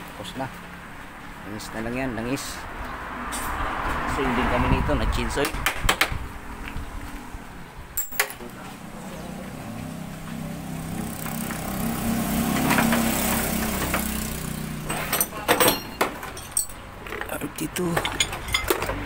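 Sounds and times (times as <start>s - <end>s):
vehicle engine running: 8.7s - 15.2s
sharp clinks: 14.5s - 16.9s, 17.8s - 19.0s.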